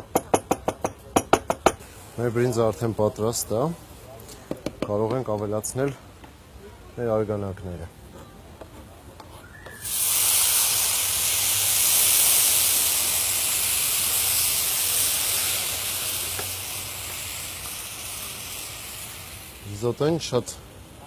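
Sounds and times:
broth sizzling in hot pan: 9.8 - 21.0.

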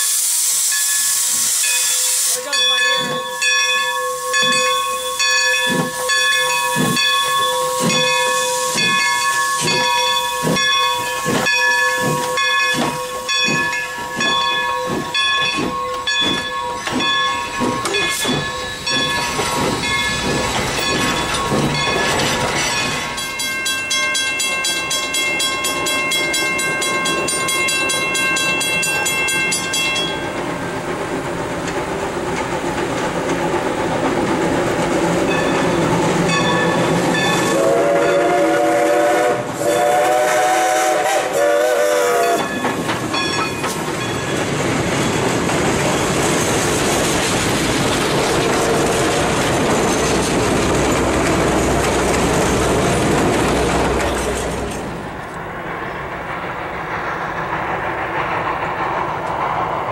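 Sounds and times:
steam hissing: 0.0 - 3.4, 4.2 - 23.3, 30.4 - 43.2
steam locomotive exhaust chuffs: 0.0 - 59.9.

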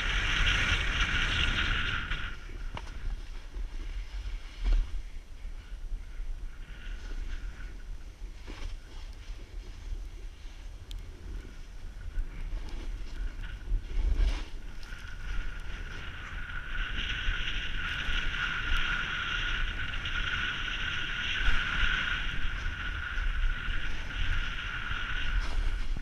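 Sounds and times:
snow hissing under skis: 0.0 - 5.0, 11.2 - 26.0
wind rumbling on microphone: 0.0 - 26.0.

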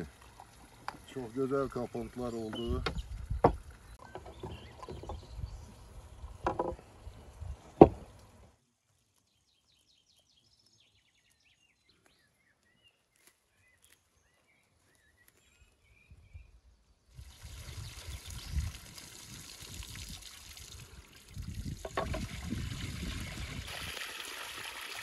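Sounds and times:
bottle knocking on wooden table: 21.8 - 22.3.

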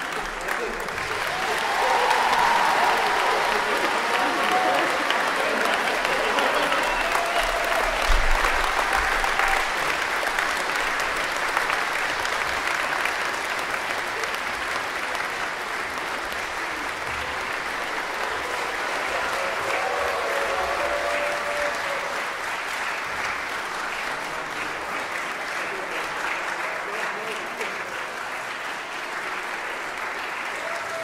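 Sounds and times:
audience applauding: 0.0 - 31.0.

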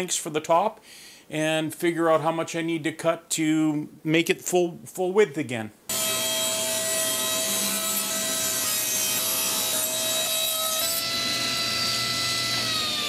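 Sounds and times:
table saw cutting wood: 5.9 - 13.0.

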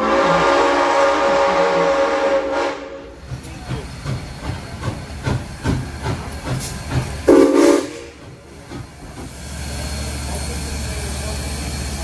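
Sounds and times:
steam whistle blast: 0.0 - 3.0, 7.3 - 8.2
steam locomotive chuffing: 0.0 - 12.0.

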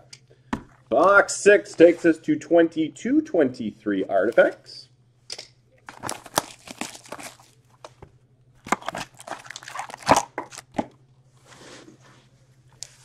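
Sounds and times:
plastic shrink wrap crinkling: 5.9 - 8.0, 8.6 - 10.8.

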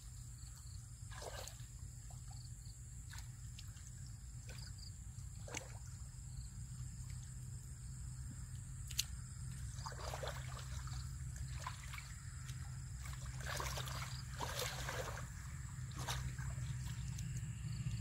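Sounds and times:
muddy water splashing: 1.0 - 8.1, 8.8 - 18.0
low rumble: 14.8 - 18.0.

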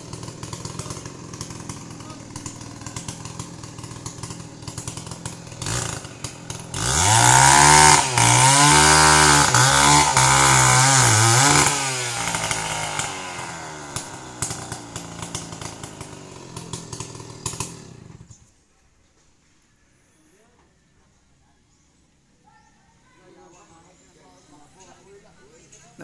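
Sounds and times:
chainsaw cutting tree trunk: 0.0 - 18.4.

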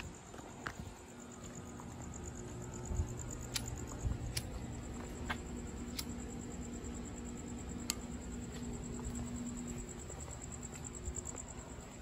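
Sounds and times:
high insect trill: 0.0 - 12.0
low steady hum: 0.0 - 12.0
sharp clicks: 3.3 - 4.6, 5.8 - 6.2, 7.8 - 8.1.

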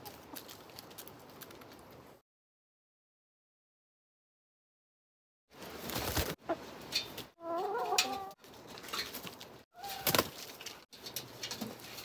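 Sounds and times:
chickens clucking: 6.2 - 8.4.

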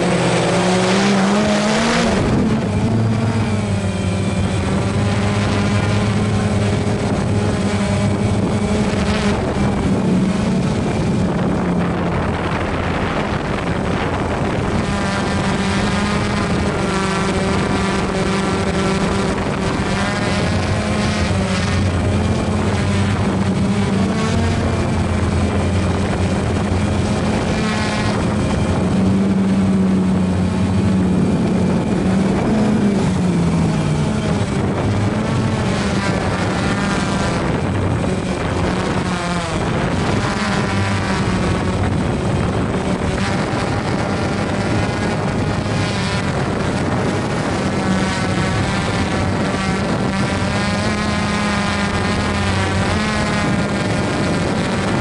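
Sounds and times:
lawn mower engine running: 0.0 - 55.0.

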